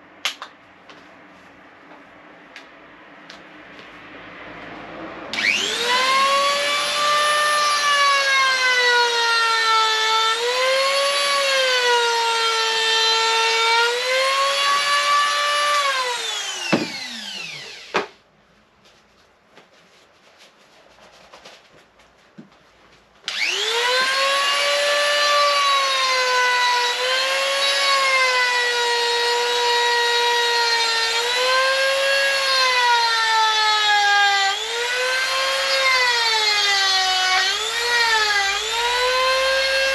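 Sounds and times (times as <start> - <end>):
power carving tool grinding wood: 5.4 - 18.1, 23.3 - 39.9.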